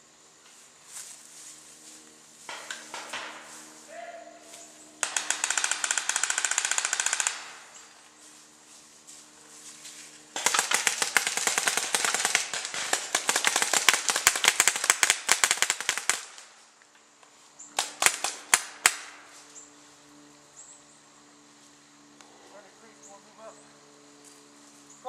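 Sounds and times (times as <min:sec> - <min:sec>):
paintball markers firing: 0:05.0 - 0:07.9, 0:10.3 - 0:16.5, 0:17.8 - 0:19.2.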